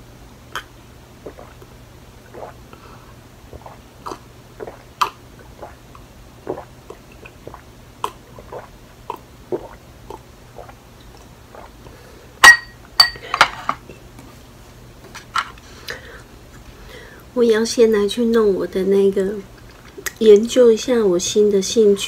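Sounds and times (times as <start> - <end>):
glass mug clinking on tray: 12.4 - 13.5.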